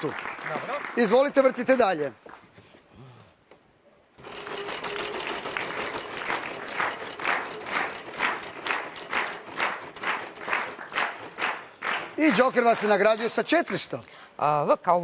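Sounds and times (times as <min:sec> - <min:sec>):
prize wheel clicking: 0:04.2 - 0:10.7.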